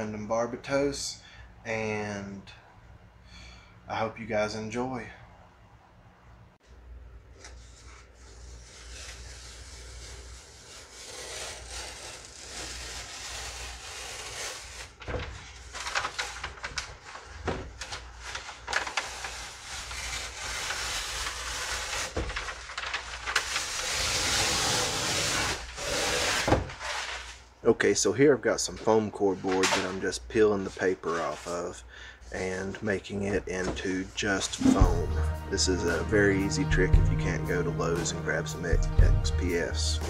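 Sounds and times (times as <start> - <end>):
paper peeling off foam board: 7.4 - 27.4.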